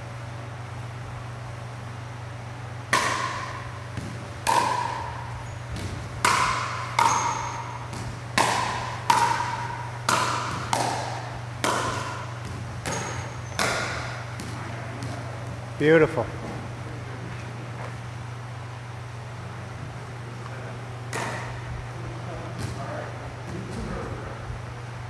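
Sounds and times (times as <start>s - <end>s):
ball bouncing: 2.9s - 15.6s, 21.1s - 21.7s
paddles hitting ball: 2.9s - 15.7s, 21.1s - 21.7s, 22.4s - 24.0s.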